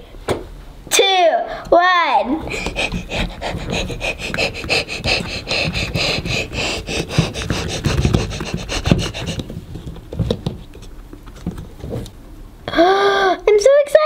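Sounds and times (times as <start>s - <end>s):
fingers rubbing plastic toy: 2.4s - 10.9s.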